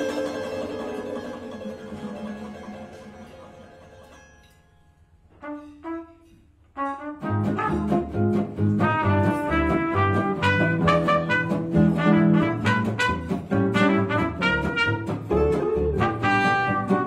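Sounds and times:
acoustic guitars: 0.0 - 17.0
trumpet: 5.2 - 17.0
double bass: 6.8 - 17.0.

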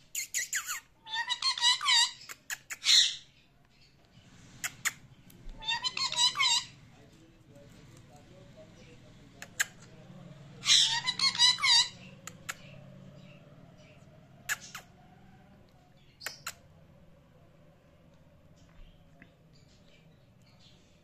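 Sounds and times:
parakeet chirping: 0.2 - 7.0, 10.6 - 15.1, 16.0 - 16.7
sharp clicks: 16.2 - 16.6.

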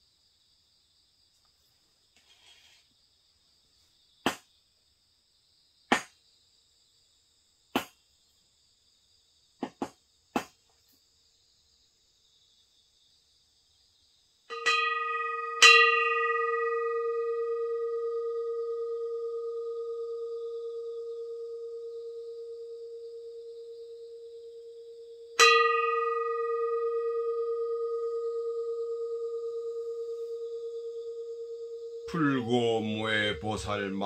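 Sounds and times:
crickets chirping: 0.0 - 34.0
metal singing bowl ringing: 14.5 - 34.0.

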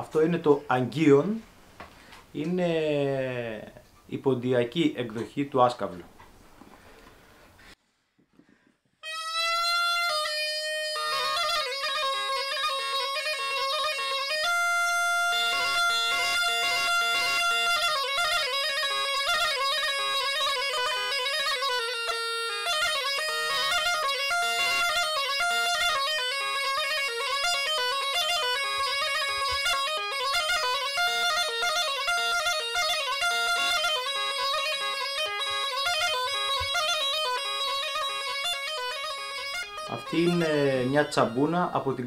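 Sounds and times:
bagpipe melody: 9.0 - 42.0.

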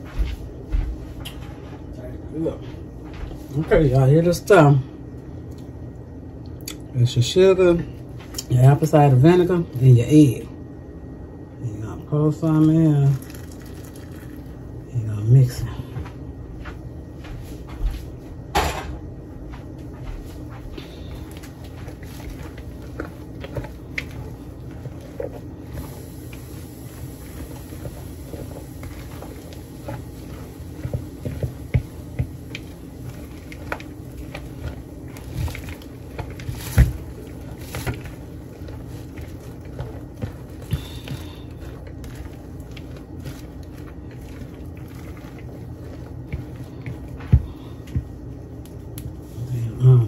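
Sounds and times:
steady low hum: 0.0 - 50.0
spoon stirring wet salad: 20.8 - 49.8.

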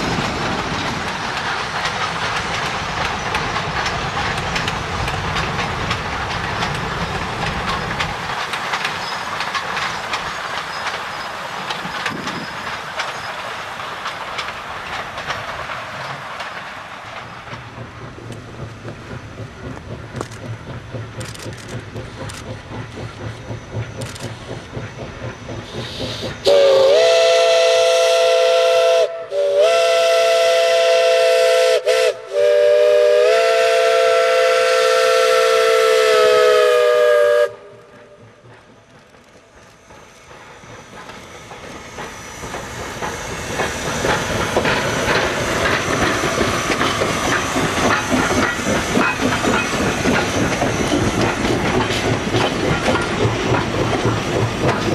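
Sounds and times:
train wheels clacking over rail joints: 0.0 - 54.9
steam whistle blasts: 25.8 - 37.8.

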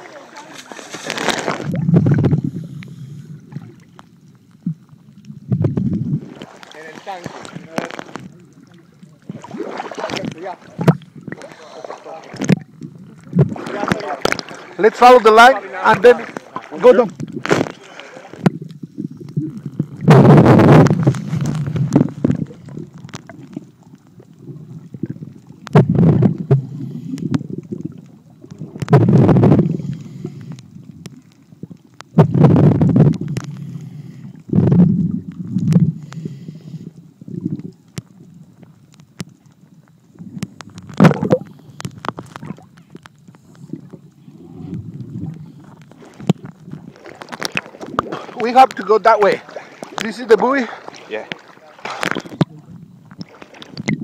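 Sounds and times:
low underwater rumble: 0.0 - 54.0
underwater bubbles and rushing water: 0.0 - 54.0.

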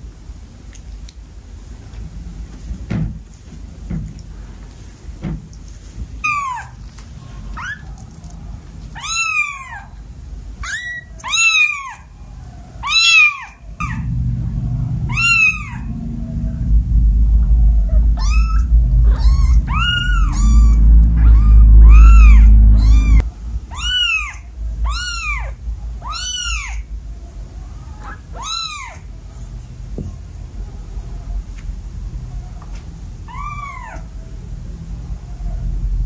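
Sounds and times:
kittens mewing: 8.9 - 10.0, 12.8 - 14.1, 15.1 - 15.9, 17.9 - 26.9
low rumbling noise: 12.1 - 36.0.

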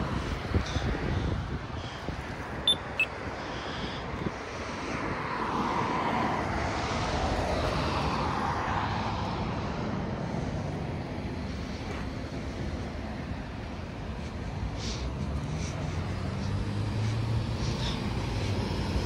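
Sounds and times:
road traffic passing: 0.0 - 19.0
short high chirps: 2.7 - 3.1.

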